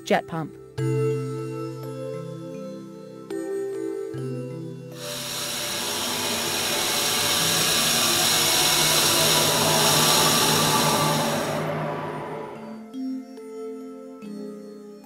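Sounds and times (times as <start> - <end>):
hissing fluid jet: 5.0 - 12.8.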